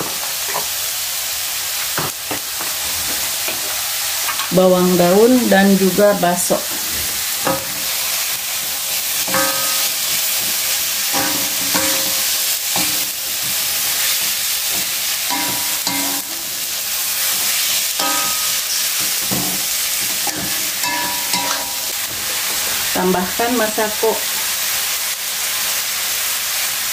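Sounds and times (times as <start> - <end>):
food sizzling in a wok: 0.0 - 26.9
spatula scraping and clinking on wok: 7.4 - 8.0, 9.2 - 22.5.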